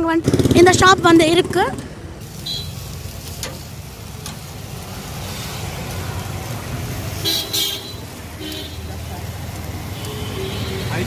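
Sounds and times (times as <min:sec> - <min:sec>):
road traffic rumble: 0:00.0 - 0:11.0
chicken sizzling on a grill: 0:02.2 - 0:11.0.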